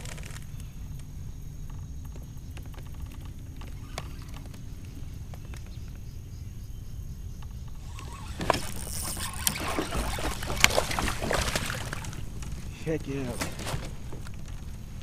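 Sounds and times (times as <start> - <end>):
fish splashing in water: 7.8 - 14.6.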